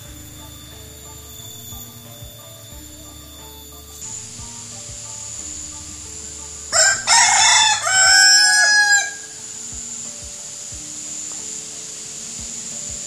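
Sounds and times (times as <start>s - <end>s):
quiet background music: 0.0s - 13.0s
roosters crowing: 6.7s - 10.0s.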